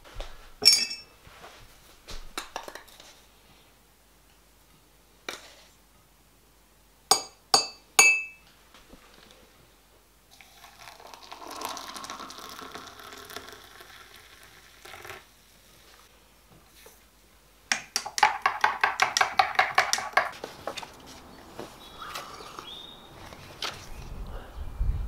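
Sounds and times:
sharp ringing clinks: 0.6 - 1.1, 7.6 - 8.4
water pouring into mug: 10.4 - 15.3.

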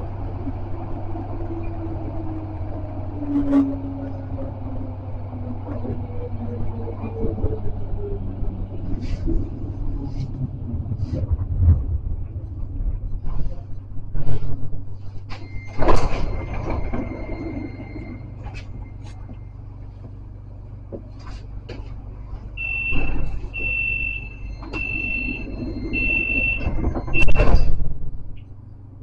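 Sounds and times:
tram doors moving: 0.0 - 29.0
tram low hum: 0.0 - 29.0
long high beeps: 22.6 - 27.4.

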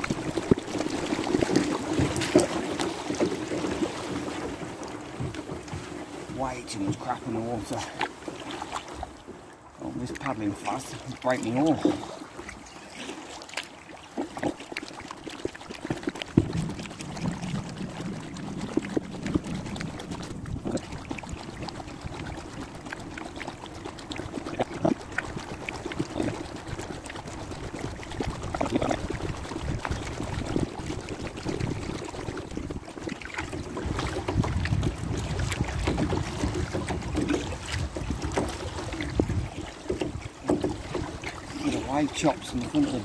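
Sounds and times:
paddle splashing water: 0.0 - 43.0
water dripping: 13.5 - 23.5.

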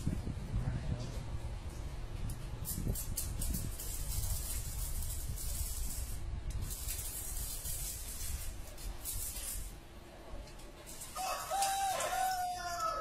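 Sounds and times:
wind buffeting microphone: 0.0 - 9.2.

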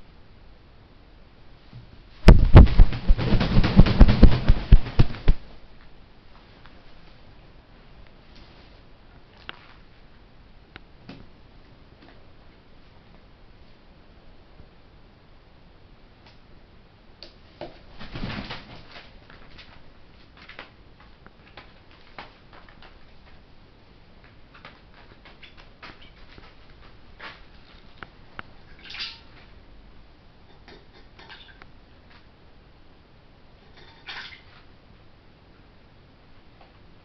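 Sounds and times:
taps and crinkles on plastic sheeting: 2.3 - 5.4, 17.6 - 23.4, 24.2 - 28.1.

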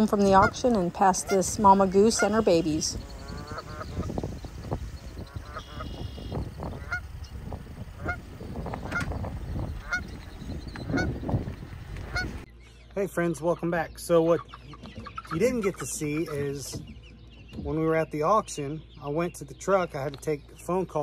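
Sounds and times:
goose honking: 0.0 - 10.2, 10.8 - 11.3, 12.0 - 12.4, 14.4 - 16.8.

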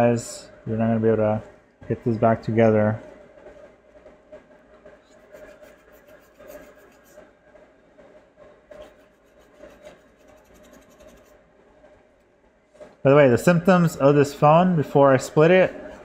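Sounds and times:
toothbrush scrubbing circuit board: 5.0 - 7.3, 8.7 - 11.4.

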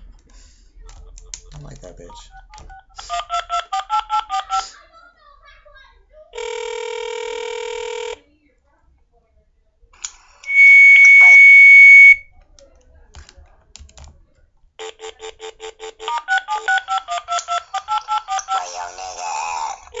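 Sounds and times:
keypad dialing beeps: 2.2 - 4.5, 10.5 - 12.2, 15.0 - 18.6
steady high beep: 10.5 - 12.2.

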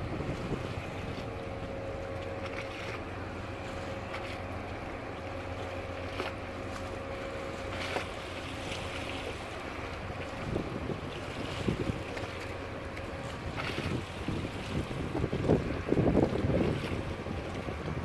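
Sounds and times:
wind buffeting microphone: 0.0 - 1.7, 9.7 - 18.0
ship machinery hum: 0.0 - 18.0.

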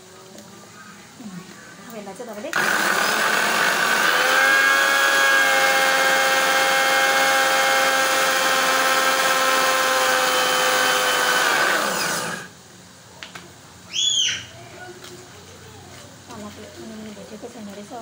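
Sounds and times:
mixer grinder running: 2.5 - 12.6.

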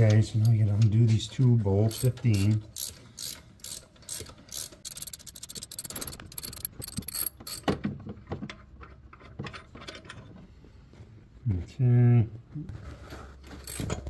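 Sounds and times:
ratchet wrench clicking: 1.9 - 7.6, 13.6 - 14.0
scattered clicks and knocks: 1.9 - 10.2.

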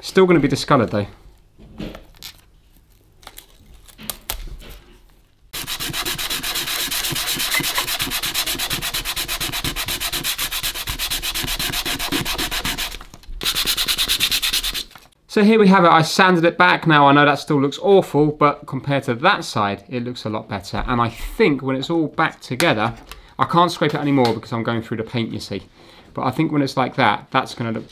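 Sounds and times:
sandpaper scratching plastic: 5.5 - 15.2.

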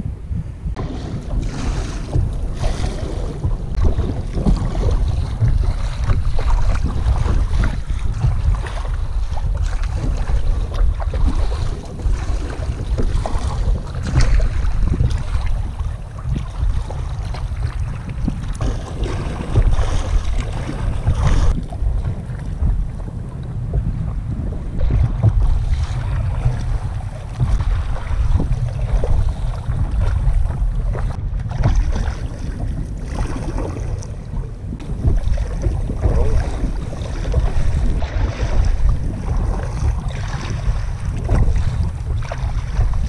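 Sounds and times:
water splashing against boat: 0.0 - 43.0
wind buffeting microphone: 0.0 - 43.0.

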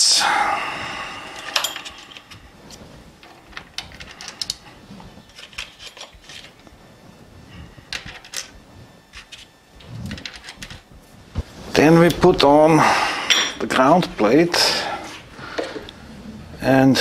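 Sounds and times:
small metallic clicks and scrapes: 5.3 - 6.6.

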